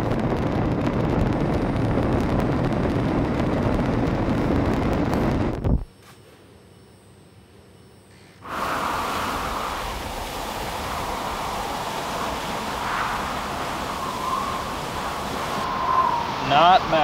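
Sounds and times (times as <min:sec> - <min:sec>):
pressurised spray hissing: 0:08.4 - 0:17.0.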